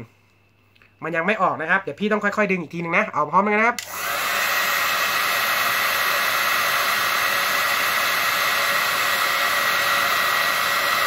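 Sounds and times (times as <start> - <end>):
hair dryer running: 3.8 - 11.0.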